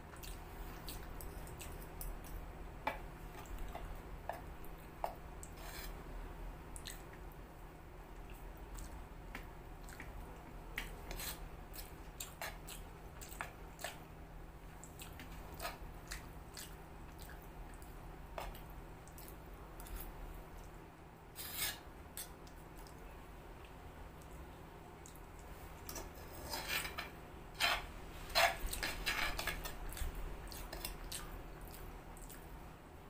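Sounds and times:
wet chewing: 0.1s - 2.4s, 14.8s - 20.8s, 28.4s - 32.5s.

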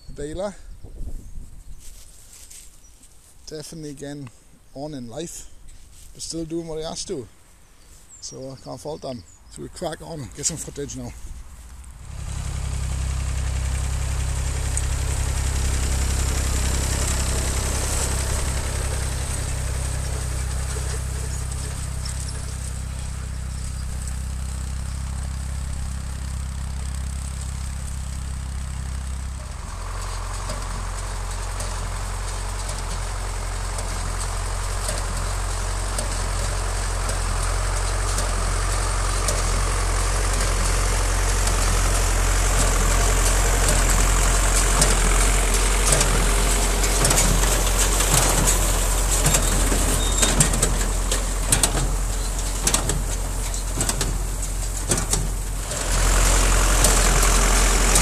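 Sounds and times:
diesel tractor running: 3.2s - 58.0s
baler mechanical clatter: 11.9s - 58.0s.

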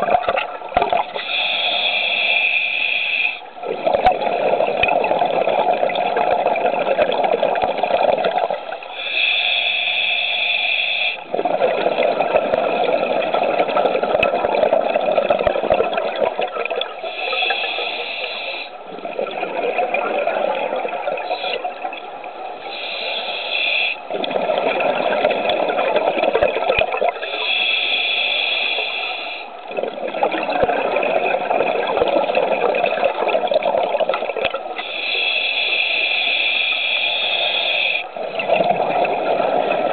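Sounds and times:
exhaled bubbles rushing: 0.0s - 1.2s, 3.6s - 8.8s, 11.3s - 17.0s, 18.9s - 22.1s, 24.1s - 27.2s, 29.7s - 34.8s, 38.2s - 39.9s
diver inhaling through regulator: 1.2s - 3.4s, 8.9s - 11.3s, 17.0s - 18.8s, 22.7s - 24.0s, 27.2s - 29.5s, 34.8s - 38.1s.

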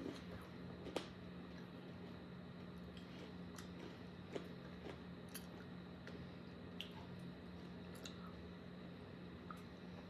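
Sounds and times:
chewing: 0.0s - 6.2s.

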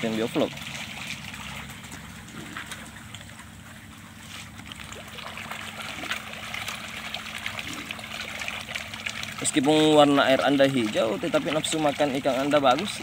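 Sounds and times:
faint steady hum: 0.0s - 13.0s
fish splashing water: 0.0s - 13.0s.

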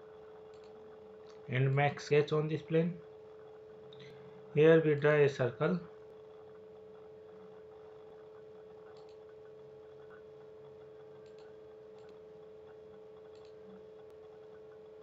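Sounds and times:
faint electrical hum: 0.0s - 15.0s
computer mouse clicks: 0.5s - 1.4s, 8.8s - 10.2s, 11.1s - 12.2s, 13.2s - 13.8s.

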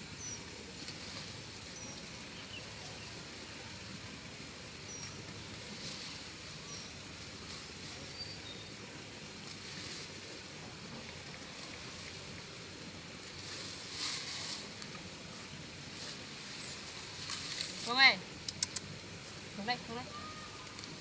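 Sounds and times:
faint hiss: 0.0s - 21.0s
rustling of leafy plants: 0.0s - 21.0s.

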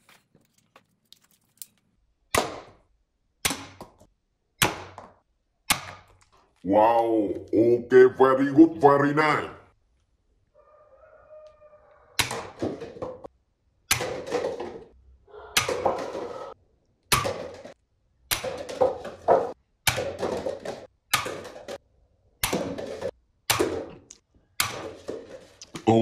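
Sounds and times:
paper cups clattering: 15.6s - 16.6s, 18.4s - 21.8s, 24.7s - 25.9s.

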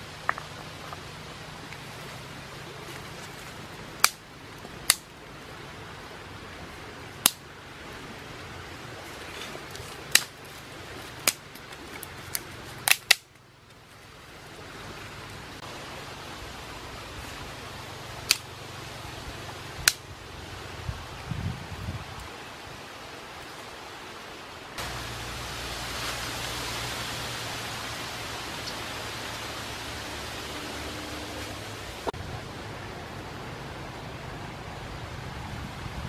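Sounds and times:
small fire crackling: 0.0s - 5.3s, 9.0s - 15.7s
steady fire hiss: 0.0s - 32.8s.

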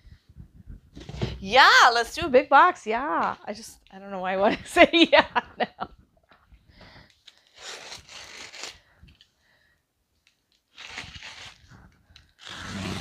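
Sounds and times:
box cutter slitting packing tape: 7.5s - 8.8s, 10.7s - 11.7s, 12.4s - 13.0s.

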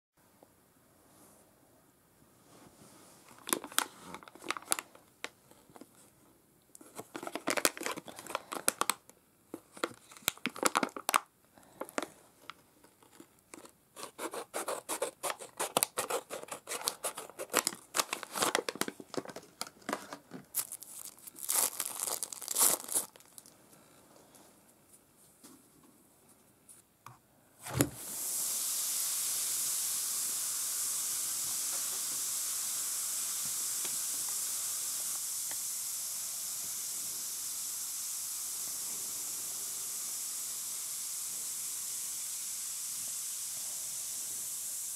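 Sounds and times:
plastic packet crinkling: 3.3s - 5.0s, 6.8s - 12.1s, 12.8s - 23.6s.

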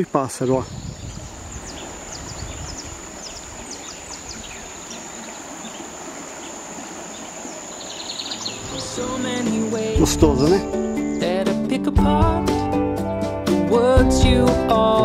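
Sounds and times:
birds chirping: 0.0s - 11.6s
river rushing: 1.0s - 11.4s.

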